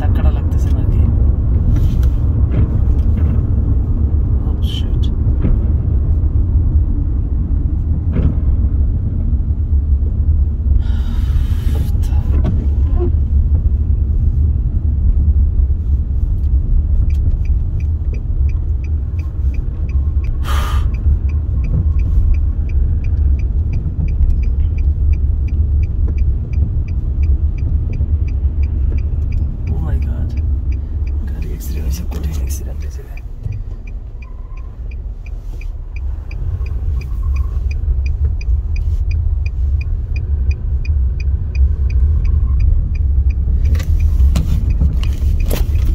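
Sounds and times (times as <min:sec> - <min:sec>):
car cabin road rumble: 0:00.0 - 0:45.9
light regular ticking: 0:13.3 - 0:45.9.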